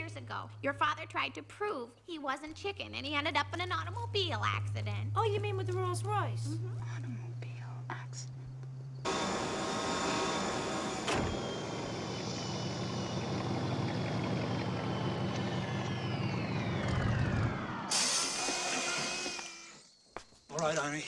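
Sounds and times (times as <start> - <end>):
hovering hum: 3.1 - 20.0
falling power-down whine: 9.0 - 20.0
sharp hit: 17.1 - 19.5
loud air hiss: 17.9 - 19.7.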